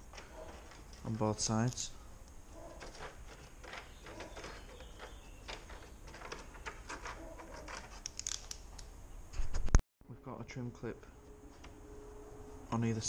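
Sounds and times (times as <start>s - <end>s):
screw clicking and scraping: 2.7s - 8.6s.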